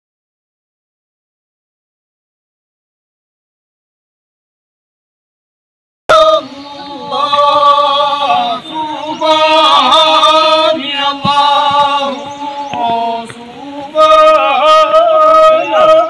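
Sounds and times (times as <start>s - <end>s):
men chanting in unison: 6.1s - 16.0s.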